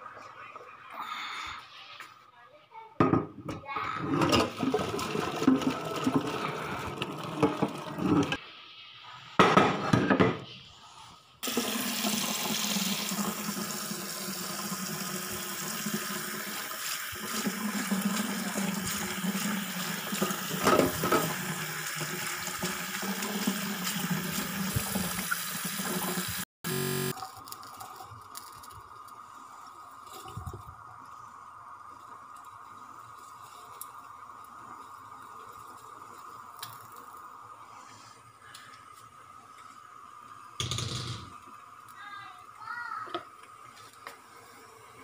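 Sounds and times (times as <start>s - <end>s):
kitchen tap running: 3.8s - 8.4s, 11.4s - 29.2s
water and pasta poured into colander: 4.2s - 8.4s, 27.1s - 31.0s.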